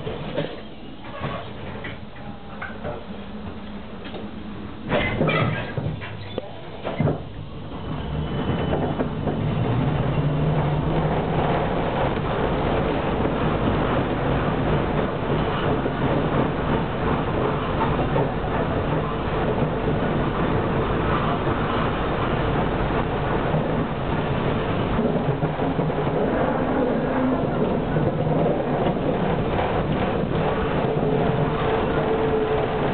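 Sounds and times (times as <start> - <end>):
tram wheels rumbling on rails: 0.0 - 32.9.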